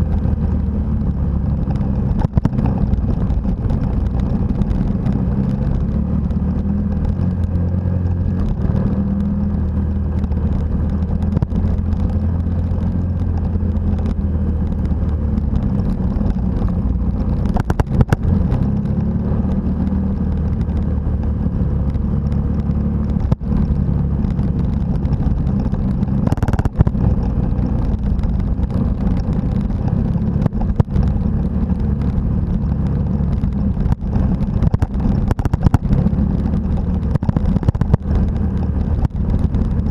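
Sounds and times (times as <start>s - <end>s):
motorcycle engine running: 0.0s - 39.9s
wind on microphone: 0.0s - 39.9s.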